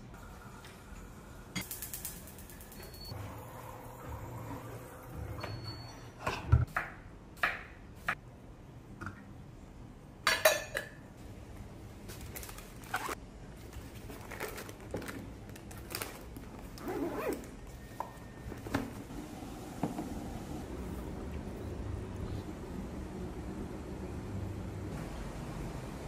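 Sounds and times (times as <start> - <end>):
backpack zipper: 16.8 - 17.5.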